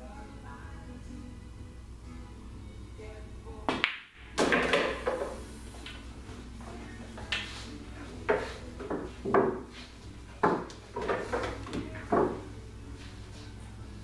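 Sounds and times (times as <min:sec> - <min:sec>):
cue tip striking ball: 0:03.7 - 0:06.1, 0:08.2 - 0:09.8, 0:10.4 - 0:12.5
billiard balls clacking: 0:03.7 - 0:12.6.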